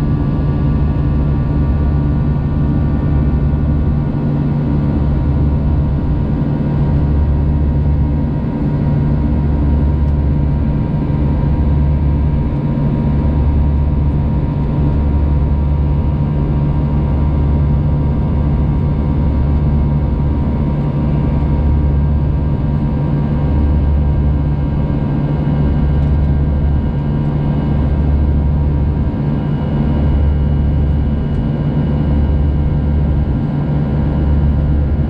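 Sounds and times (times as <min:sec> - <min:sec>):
jet engine drone in cabin: 0:00.0 - 0:35.0.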